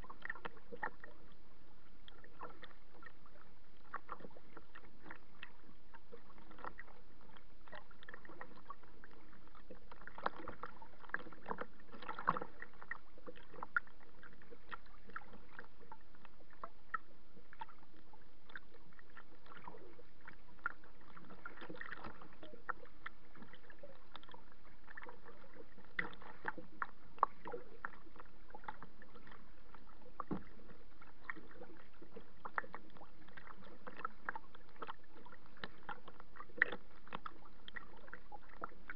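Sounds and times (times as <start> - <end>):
steady wash of water: 0.0 - 38.9
waves slapping against kayak hull: 19.0 - 38.9.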